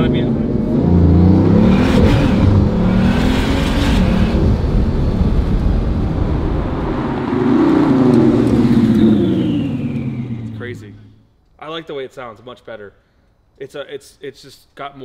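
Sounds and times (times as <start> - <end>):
sports car engine accelerating: 0.0 - 11.2.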